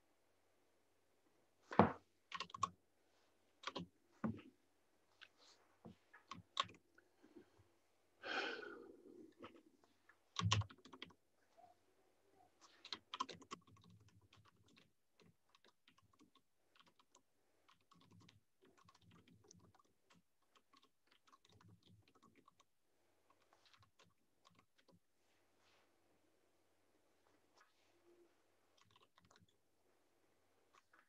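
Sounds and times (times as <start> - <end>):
keyboard typing: 2.3 - 2.8, 3.6 - 4.5, 6.2 - 6.8, 10.3 - 11.2, 12.6 - 22.7, 23.3 - 25.0, 28.8 - 29.6.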